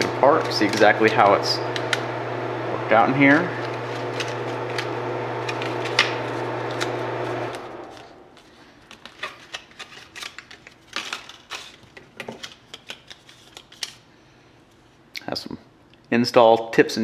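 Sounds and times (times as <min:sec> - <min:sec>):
steady low hum: 0:00.0 - 0:08.9
packaging being pulled apart: 0:03.6 - 0:14.0.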